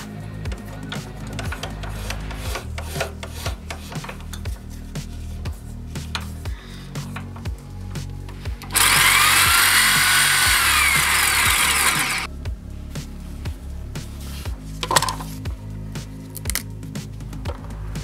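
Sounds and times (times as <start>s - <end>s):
background music with beat: 0.0s - 18.0s
electric drill whining: 8.7s - 12.3s.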